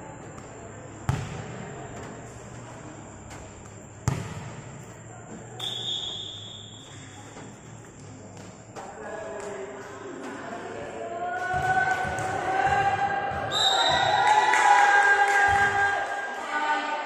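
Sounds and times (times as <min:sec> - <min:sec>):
volleyball struck hard: 0:04.0 - 0:04.6
whistle blown: 0:05.6 - 0:07.2, 0:13.5 - 0:14.4.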